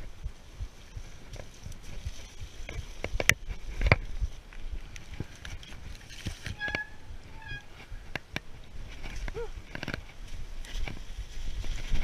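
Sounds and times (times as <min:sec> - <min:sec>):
tyre and riding noise: 0:00.0 - 0:12.0
bike knocking over roots and rocks: 0:05.0 - 0:06.6
short squeaks: 0:06.4 - 0:07.9.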